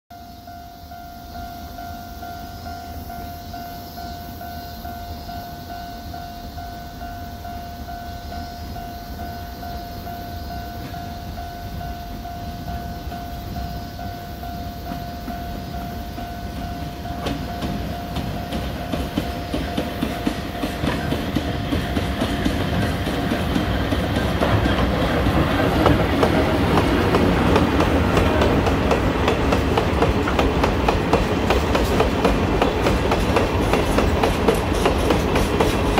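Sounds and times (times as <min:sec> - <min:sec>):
steady high tone: 0:00.1 - 0:35.9
freight train rumble: 0:00.3 - 0:35.9
wheel clatter over rail joints: 0:14.9 - 0:35.9.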